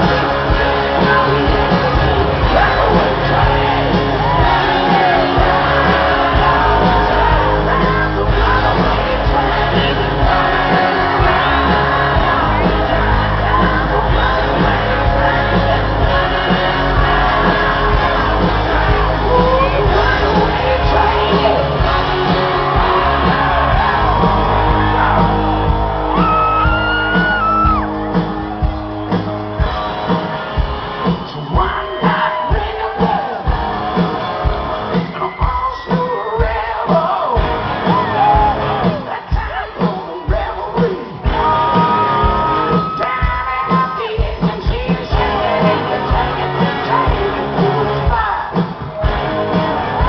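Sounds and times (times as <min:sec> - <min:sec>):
person singing: 0:00.0 - 0:27.9, 0:31.0 - 0:50.0
crowd shouting: 0:00.0 - 0:50.0
live rock band playing: 0:00.0 - 0:50.0
steady drum beat: 0:00.0 - 0:50.0.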